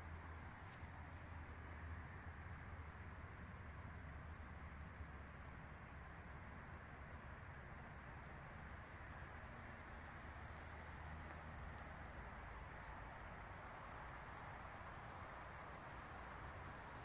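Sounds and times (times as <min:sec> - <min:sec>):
distant bird chirps: 0:00.0 - 0:13.4.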